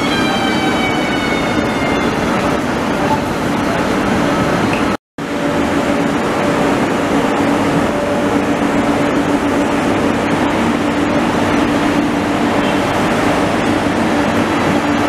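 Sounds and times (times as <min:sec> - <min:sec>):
train coaches running past: 0:00.0 - 0:15.0.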